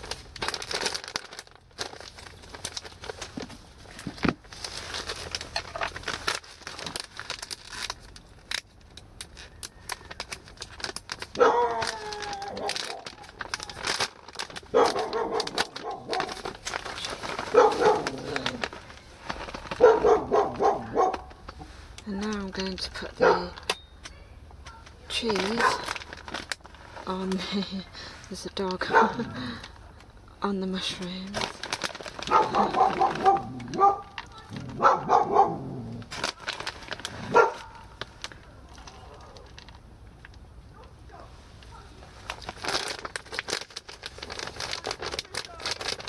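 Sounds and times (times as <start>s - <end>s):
plastic bag crinkling: 0.0s - 23.8s, 24.7s - 46.0s
dog barking: 11.4s - 11.8s, 14.7s - 16.4s, 17.4s - 18.2s, 19.8s - 21.3s, 23.2s - 23.6s, 25.6s - 25.9s, 28.9s - 29.2s, 32.3s - 35.8s, 37.3s - 38.0s, 40.7s - 41.4s.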